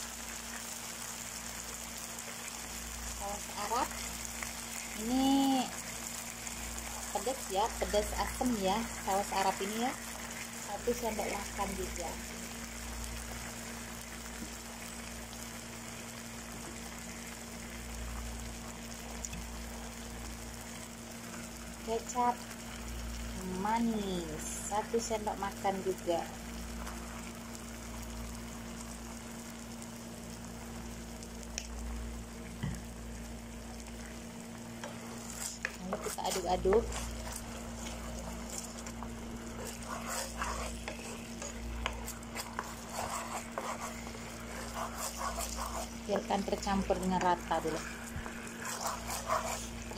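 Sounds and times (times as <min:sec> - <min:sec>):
food sizzling in oil: 0:00.0 - 0:49.9
steady low hum: 0:01.3 - 0:49.9
wooden spatula scraping a pan: 0:34.8 - 0:49.9.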